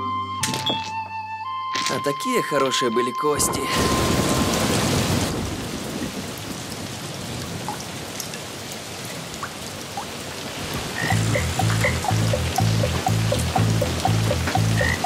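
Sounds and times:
heavy rain pouring off roof: 3.4s - 15.0s
frogs croaking: 10.8s - 15.0s.

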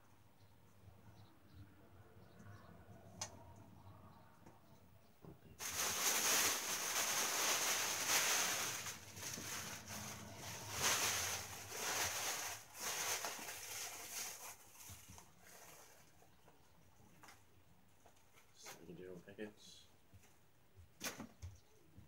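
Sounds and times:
plastic packaging crinkling: 5.6s - 16.1s.

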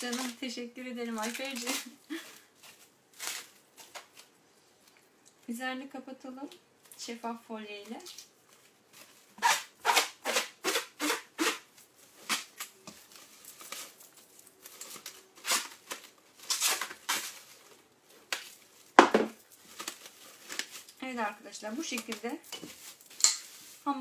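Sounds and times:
cling film crinkling: 0.0s - 5.3s, 11.0s - 24.0s.

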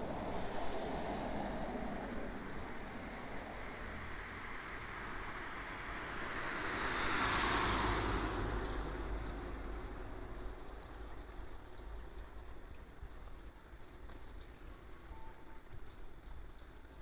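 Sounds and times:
vehicle passing: 0.0s - 10.9s
road traffic: 0.0s - 17.0s.

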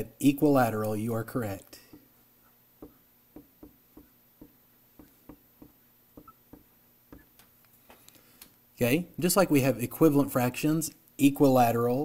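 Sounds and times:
marker tapping on glass: 2.8s - 7.4s.

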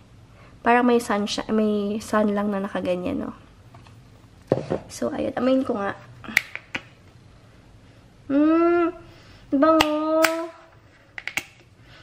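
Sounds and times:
woman humming mmm: 8.3s - 9.1s.

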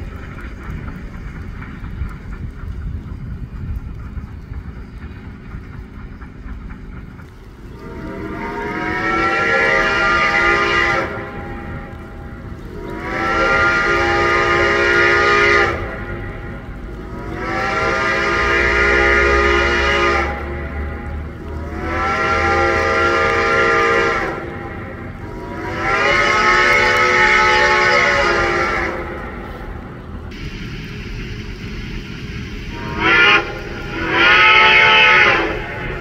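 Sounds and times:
steady low rumble: 0.0s - 36.0s
steam locomotive chime whistle: 7.6s - 20.9s, 21.7s - 29.7s, 30.3s - 36.0s.

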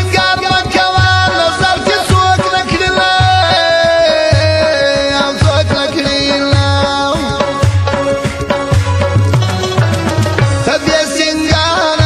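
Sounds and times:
man singing long held notes: 0.0s - 7.7s, 10.6s - 12.0s
deep drum beat: 0.0s - 12.0s
instrumental accompaniment: 0.0s - 12.0s.

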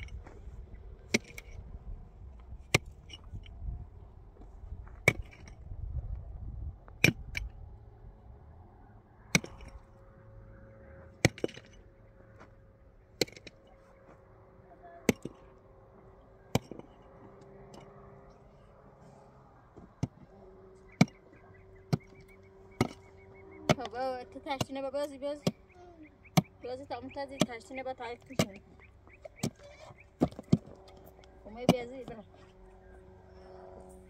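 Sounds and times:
digging tool striking stony earth: 1.0s - 1.7s, 2.5s - 3.6s, 4.8s - 5.8s, 6.9s - 7.6s, 9.3s - 9.9s, 11.2s - 11.8s, 13.1s - 13.7s, 15.0s - 15.5s, 16.5s - 17.1s, 20.9s - 23.1s, 27.3s - 28.7s, 29.3s - 32.2s.

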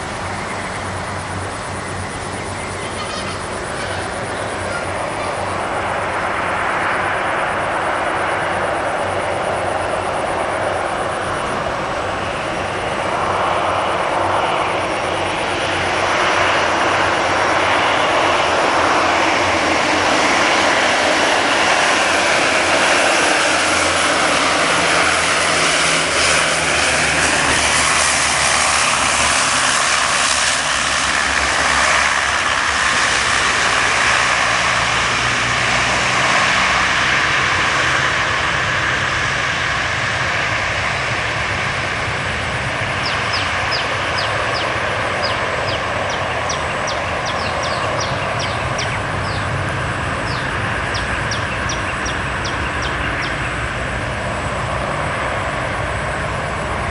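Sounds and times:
turboprop engines droning: 0.0s - 56.9s.

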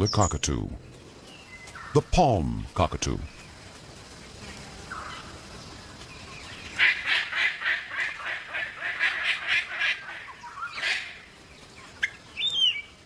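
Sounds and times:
cockatoo squawking harshly: 6.8s - 11.2s.

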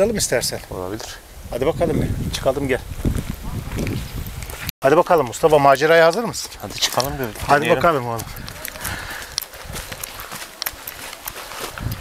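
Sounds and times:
footsteps on forest floor: 4.0s - 12.0s.

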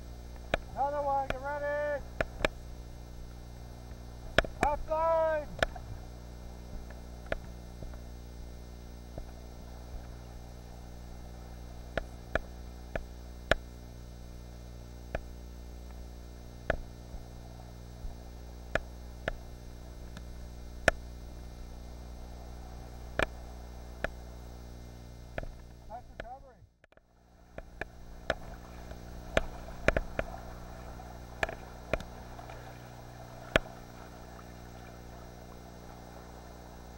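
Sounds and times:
low electrical hum: 0.0s - 36.9s.

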